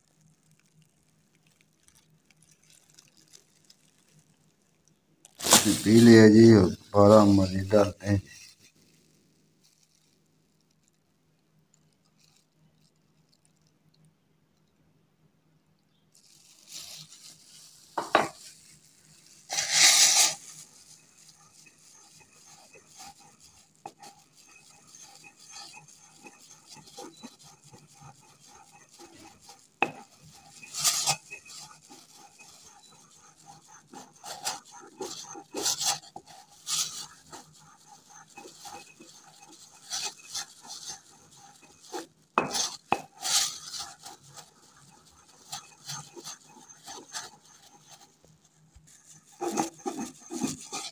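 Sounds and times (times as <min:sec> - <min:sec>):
pestle grinding in a mortar: 0:16.4 - 0:18.7, 0:19.4 - 0:50.9.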